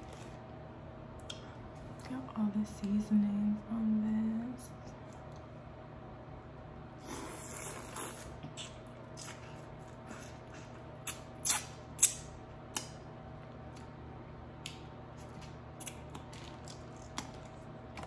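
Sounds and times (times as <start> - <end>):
crunchy chewing and biting: 7.0 - 12.9.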